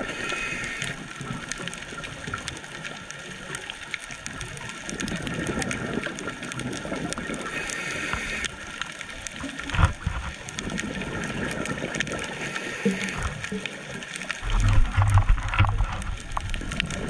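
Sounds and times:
regulator hiss: 0.0s - 1.0s, 7.5s - 8.5s
exhaled bubbles gurgling underwater: 0.0s - 17.0s.

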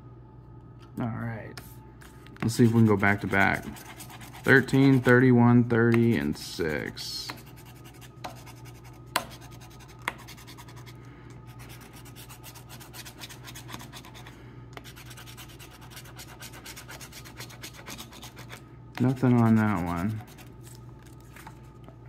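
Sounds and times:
coin scratching lottery ticket: 14.9s - 20.5s.

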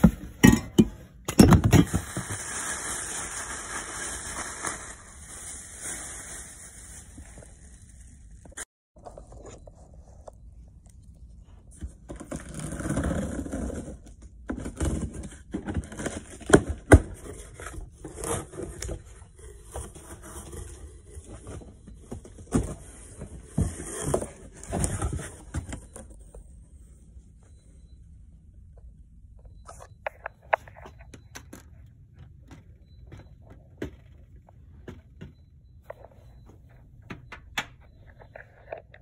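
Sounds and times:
cardboard box scraping and rustling: 12.1s - 26.2s.

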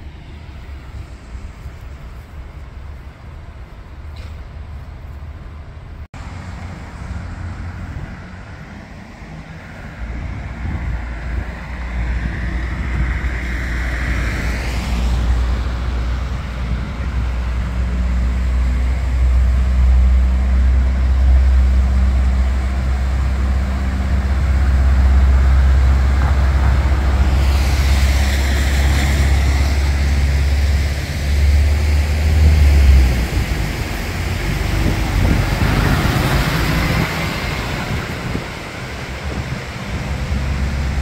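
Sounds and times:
deep traffic rumble: 0.0s - 41.0s
vehicle engines running: 0.0s - 41.0s
vehicles swishing past: 6.1s - 41.0s
tyres hissing through water: 13.3s - 41.0s.

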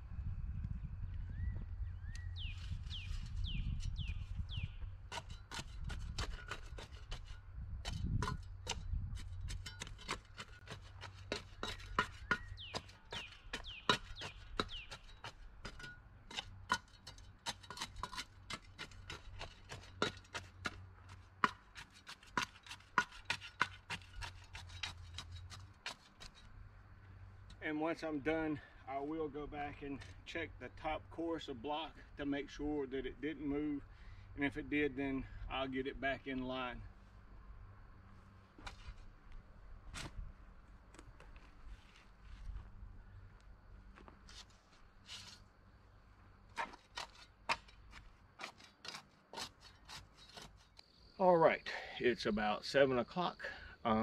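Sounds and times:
birds chirping: 0.8s - 5.0s, 11.6s - 15.3s
shovel chopping into dirt: 5.1s - 26.5s, 38.6s - 39.1s, 39.9s - 40.2s, 46.5s - 50.7s.

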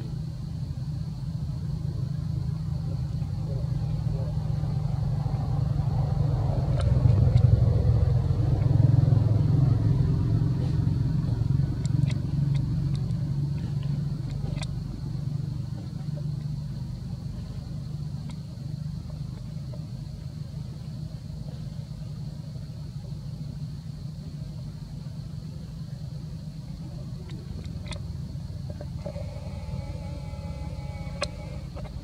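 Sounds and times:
engine rumble: 0.0s - 32.0s
faint sharp clicks: 6.7s - 7.5s, 11.8s - 14.8s, 18.2s - 18.5s, 26.8s - 29.2s, 30.9s - 32.0s.

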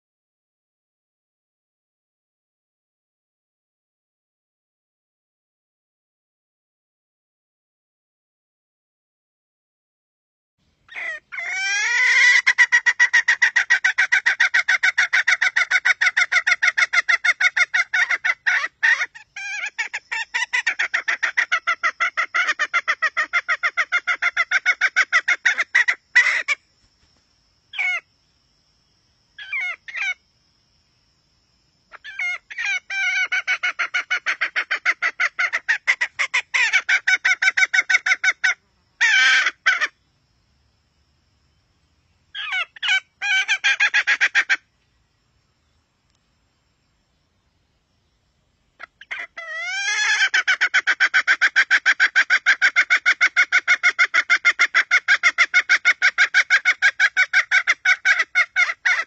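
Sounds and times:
hen clucking: 10.9s - 26.6s, 32.0s - 39.9s, 48.8s - 59.0s.

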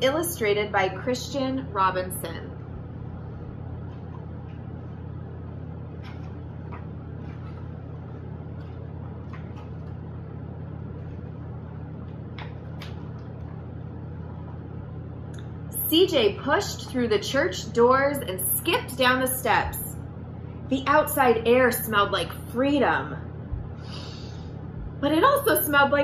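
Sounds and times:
low background hum: 0.0s - 26.0s
book pages turning: 3.8s - 5.0s, 5.9s - 10.1s, 12.0s - 13.6s.

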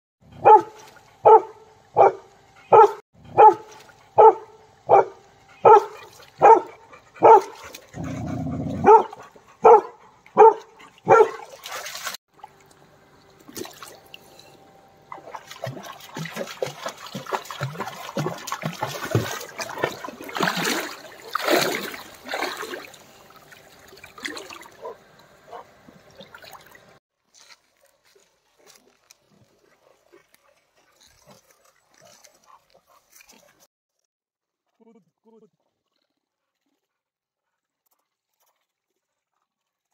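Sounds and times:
dog barking: 0.4s - 11.5s, 24.8s - 25.7s
water splashing and trickling: 3.4s - 33.7s, 37.7s - 39.9s.

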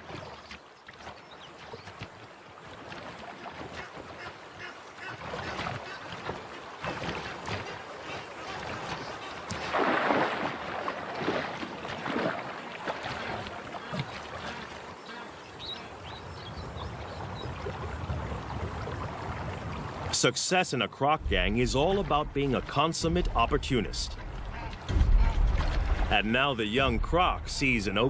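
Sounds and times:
water splashing and sloshing: 0.0s - 28.0s
loud splash: 8.5s - 14.6s, 21.2s - 28.0s.

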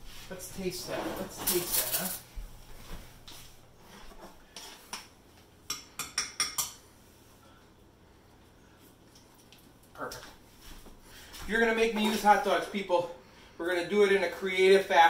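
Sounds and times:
spoon clinking against a pan: 5.7s - 6.8s.

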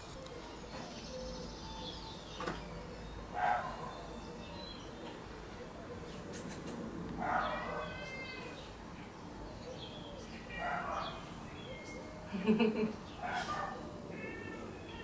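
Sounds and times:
cat meowing: 7.2s - 9.1s, 14.1s - 15.0s.

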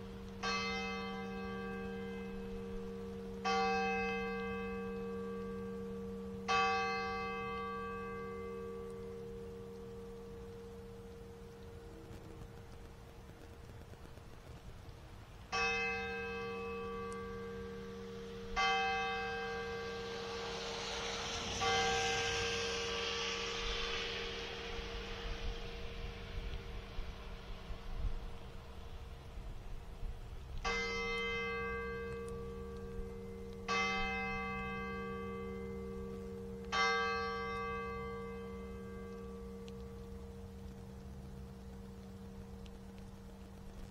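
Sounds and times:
church bell tolling: 0.4s - 9.3s, 15.5s - 26.4s, 30.6s - 40.2s
large church bell tolling: 15.5s - 20.5s, 30.6s - 39.4s.

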